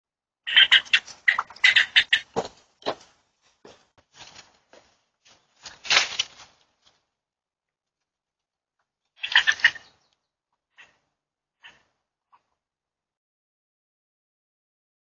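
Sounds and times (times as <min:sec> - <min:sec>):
sharp chirping animal calls: 0:00.5 - 0:02.3, 0:09.2 - 0:11.0
harsh animal call: 0:09.2 - 0:09.9.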